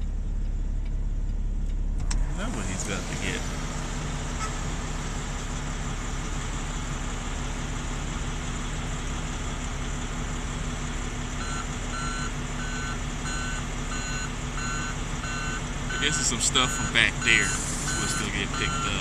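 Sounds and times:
truck diesel engine idling: 0:00.0 - 0:19.0
reversing alarm beeping: 0:11.4 - 0:19.0.

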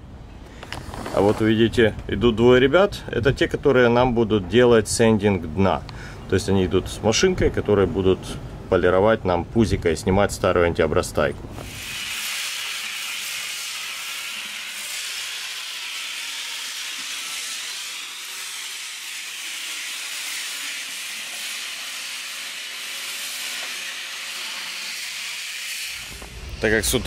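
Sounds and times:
electric disc sander hissing: 0:11.6 - 0:27.0.

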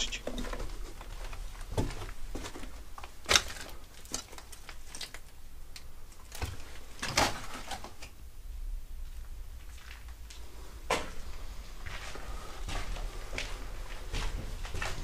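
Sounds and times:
footsteps crunching on rubble: 0:00.0 - 0:05.2, 0:09.1 - 0:15.0.

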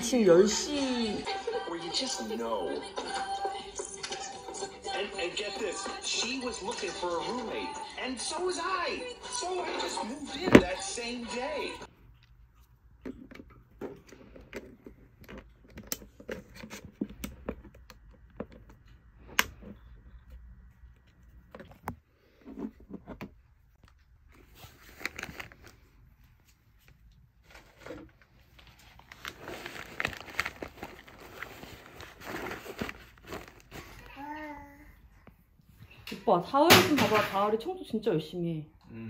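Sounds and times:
fabric rustling: 0:29.0 - 0:34.0.

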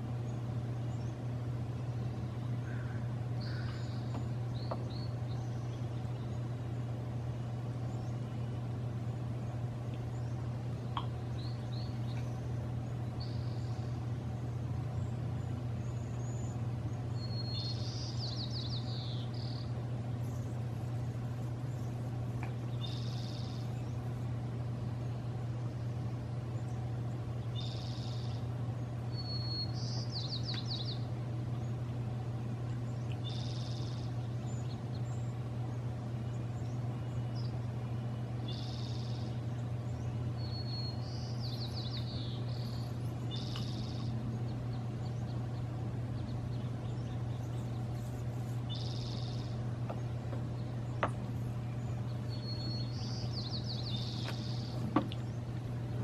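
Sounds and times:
low hum: 0:00.0 - 0:56.0
songbirds singing: 0:00.0 - 0:56.0
bird trill: 0:02.5 - 0:06.4, 0:15.8 - 0:20.6, 0:22.7 - 0:24.0, 0:27.4 - 0:28.4, 0:29.1 - 0:31.1, 0:38.4 - 0:51.0, 0:51.6 - 0:55.4.

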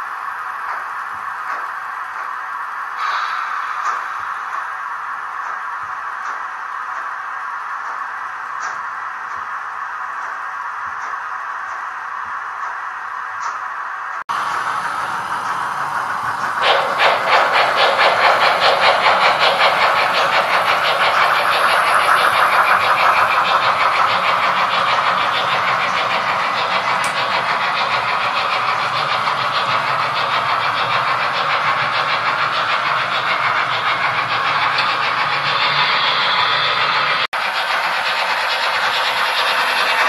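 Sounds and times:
steam locomotive chuffing: 0:00.0 - 0:12.9, 0:14.3 - 0:40.0
steam hiss: 0:03.0 - 0:04.8, 0:14.3 - 0:40.0.

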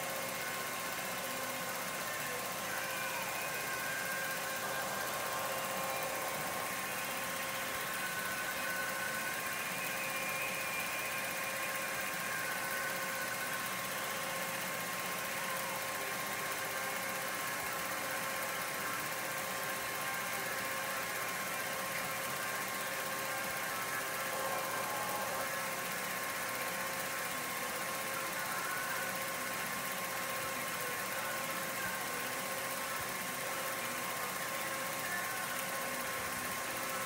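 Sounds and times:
faint steady tones: 0:00.0 - 0:37.0
film projector whirring: 0:00.0 - 0:37.0.

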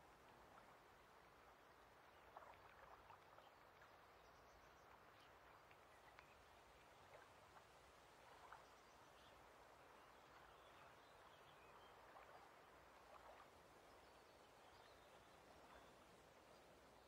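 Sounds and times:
soft water noise: 0:00.0 - 0:17.0.

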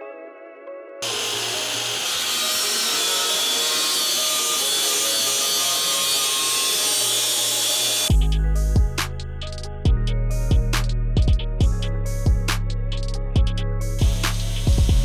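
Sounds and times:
angle grinder cutting steel: 0:01.0 - 0:08.1, 0:14.0 - 0:15.0.

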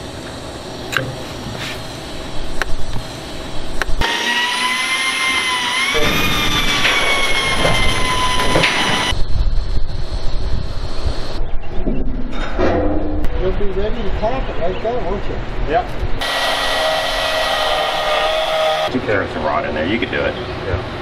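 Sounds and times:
electric drill whining: 0:04.0 - 0:09.2, 0:16.2 - 0:18.9.

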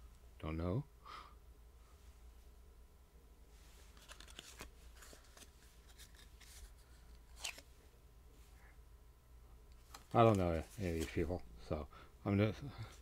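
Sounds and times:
low room hum: 0:00.0 - 0:13.0
cards clicking and rustling: 0:03.9 - 0:07.7, 0:09.8 - 0:11.3.

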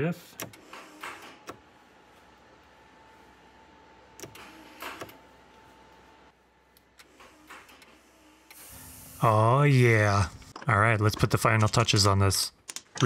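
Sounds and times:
mechanical clunks: 0:04.2 - 0:05.2.

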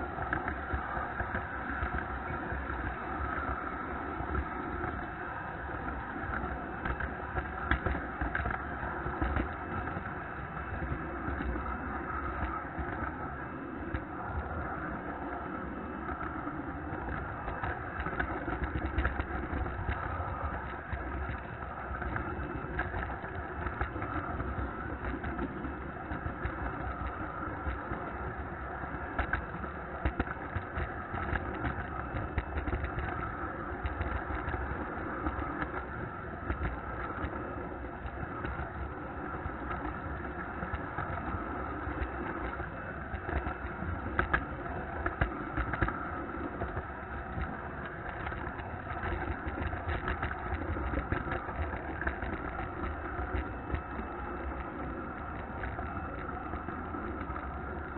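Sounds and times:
model train wheels on rails: 0:00.0 - 0:57.9
wheels clicking over turnouts: 0:00.0 - 0:57.9.

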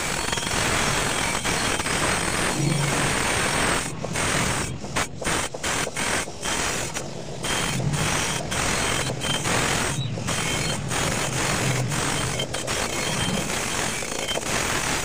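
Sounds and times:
electric motor hum: 0:06.0 - 0:14.8.

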